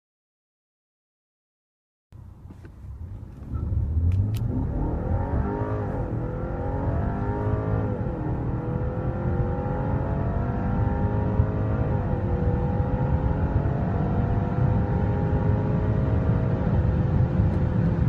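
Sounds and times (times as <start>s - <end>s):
car engine accelerating: 2.2s - 18.0s.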